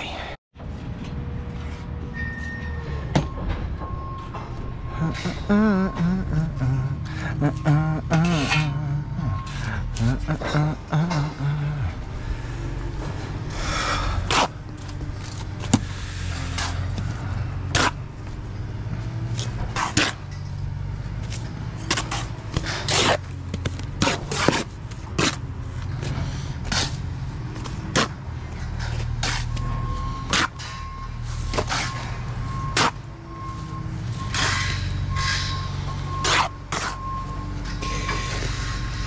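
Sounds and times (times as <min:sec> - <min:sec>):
engine droning: 0:00.0 - 0:39.0
reversing alarm beeping: 0:02.0 - 0:19.7, 0:28.6 - 0:39.0
trowel scraping mortar: 0:21.9 - 0:23.4, 0:24.0 - 0:25.4.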